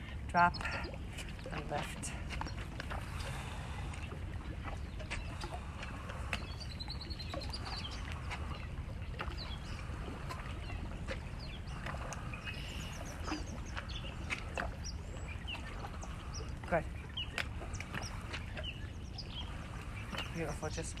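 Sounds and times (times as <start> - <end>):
birds chirping and whistling: 6.4 - 21.0.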